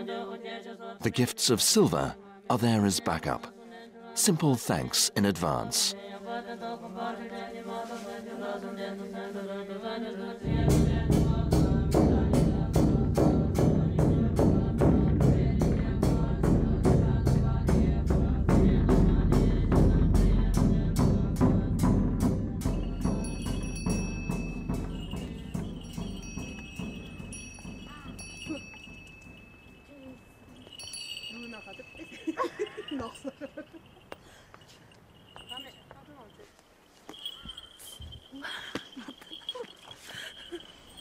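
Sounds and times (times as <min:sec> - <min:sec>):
women chanting: 0:00.0 - 0:01.0, 0:05.9 - 0:26.0
large drum beaten: 0:10.4 - 0:30.9
high steady ringing tones: 0:22.6 - 0:41.0.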